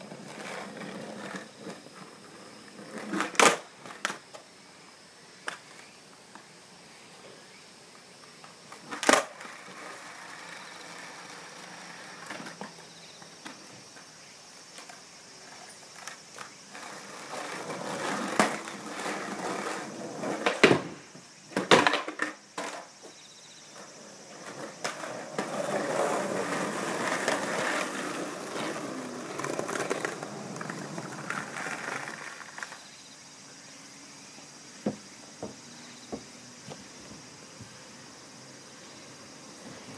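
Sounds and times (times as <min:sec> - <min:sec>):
skateboard clacking on ground: 0:00.0 - 0:04.5, 0:08.4 - 0:14.1, 0:14.8 - 0:23.2, 0:23.8 - 0:32.9
skateboard wheels rolling on concrete: 0:00.0 - 0:39.9.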